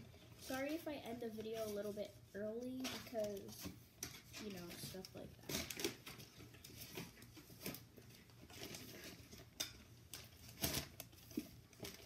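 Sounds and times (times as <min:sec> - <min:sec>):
plastic wrapping crinkling: 0:04.3 - 0:12.0.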